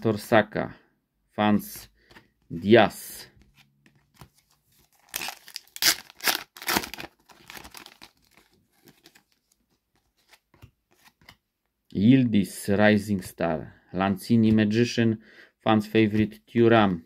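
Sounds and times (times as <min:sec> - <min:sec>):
card packet tearing: 0:04.2 - 0:09.3
wrapper crinkling: 0:04.8 - 0:09.5.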